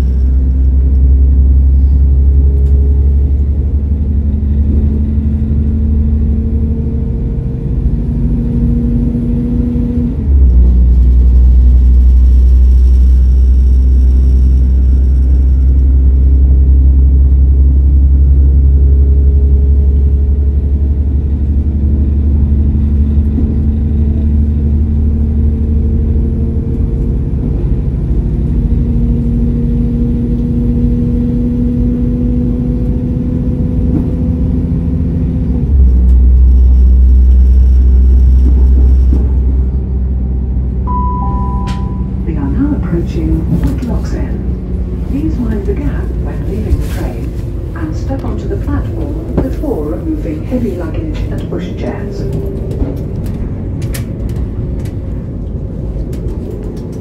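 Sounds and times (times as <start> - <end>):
train diesel engine rumble: 0.0 - 57.0
transmission whine rising in pitch: 11.2 - 18.1, 36.1 - 42.3.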